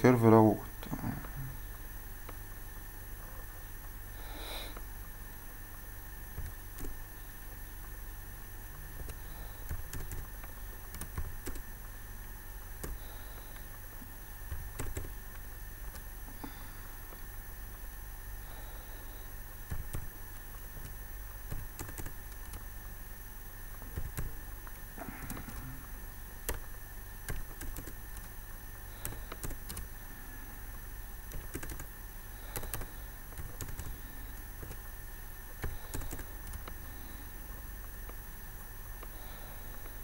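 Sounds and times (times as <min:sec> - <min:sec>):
steady background hum: 0:00.0 - 0:40.0
keyboard keystrokes: 0:09.0 - 0:10.3, 0:10.9 - 0:11.6, 0:14.5 - 0:15.1, 0:19.7 - 0:20.1, 0:20.8 - 0:22.6, 0:23.9 - 0:24.4, 0:26.4 - 0:28.3, 0:29.0 - 0:29.9, 0:31.3 - 0:31.9, 0:32.5 - 0:33.9, 0:35.6 - 0:36.8.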